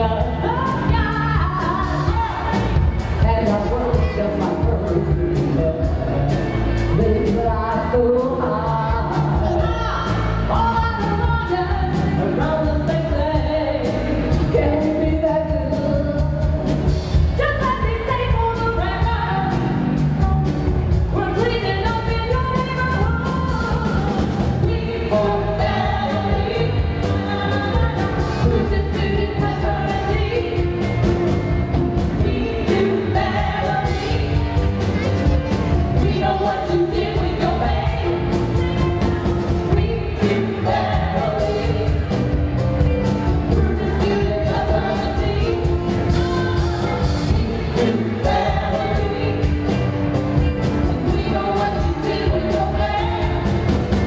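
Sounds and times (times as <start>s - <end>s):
women singing: 0.0s - 31.1s, 32.1s - 42.7s, 43.3s - 49.8s, 50.4s - 54.0s
drums: 0.0s - 54.0s
electric bass: 0.0s - 54.0s
keyboard: 0.0s - 54.0s.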